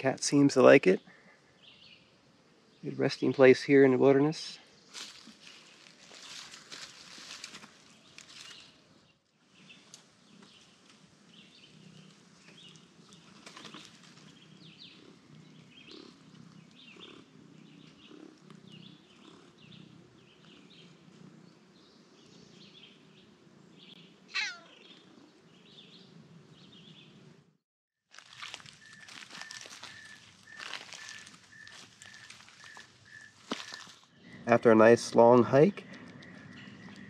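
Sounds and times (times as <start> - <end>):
cat purring: 10.2 - 23.8
cat crying: 24.3 - 24.8.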